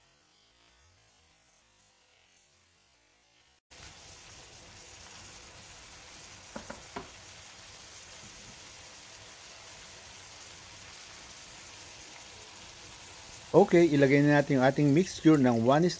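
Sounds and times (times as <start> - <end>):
food sizzling in oil: 0.0 - 15.9
light knocks: 6.5 - 7.1.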